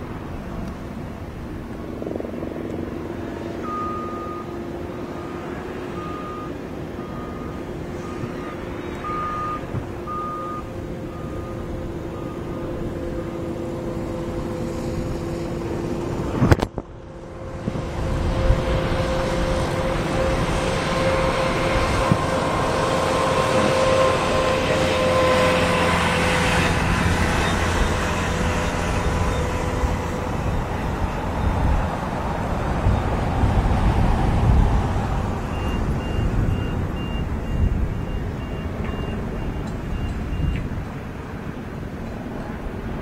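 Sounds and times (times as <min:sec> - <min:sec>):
jet airliner engine noise: 0:00.0 - 0:43.0
steady engine whine: 0:00.0 - 0:43.0
faint short beeps: 0:03.6 - 0:04.5, 0:05.1 - 0:11.6, 0:35.6 - 0:40.7.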